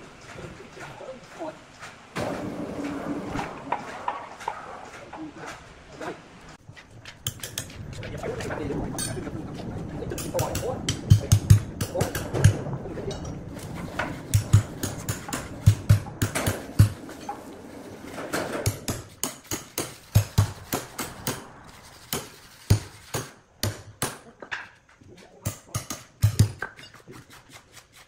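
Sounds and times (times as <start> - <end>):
hammer striking steel spikes: 14.2 - 17.5, 18.3 - 24.3, 25.4 - 28.0.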